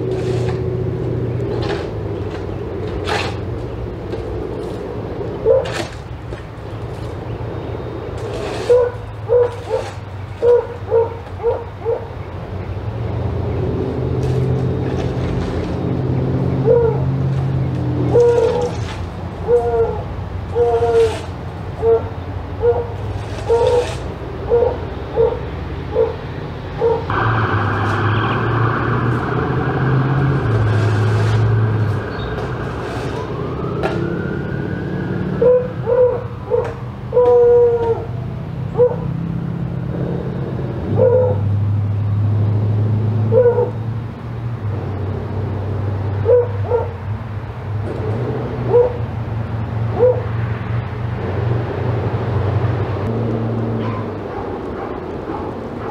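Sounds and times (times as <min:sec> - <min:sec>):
siren wailing: 0:27.1 - 0:38.1.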